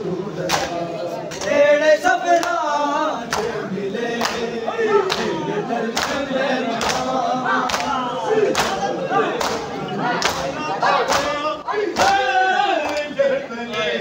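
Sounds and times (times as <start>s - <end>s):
men chanting in unison: 0.0s - 14.0s.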